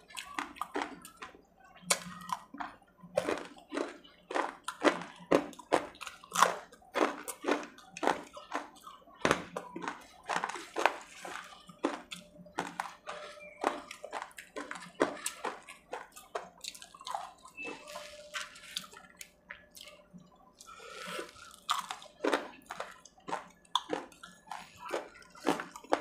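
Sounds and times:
chewing crunchy food: 0.0s - 26.0s.

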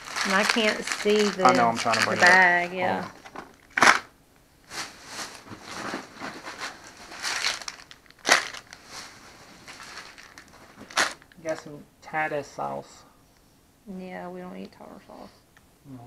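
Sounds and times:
plastic wrappers crinkling: 0.0s - 11.6s.

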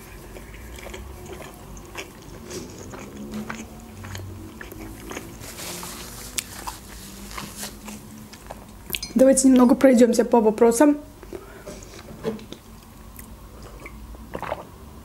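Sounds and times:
chewing dumpling: 0.0s - 9.0s.

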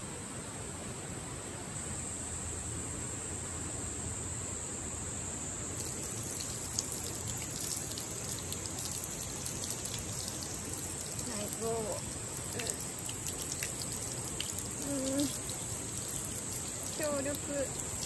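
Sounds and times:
water spattering: 5.7s - 18.0s
tap water running: 5.8s - 18.0s.

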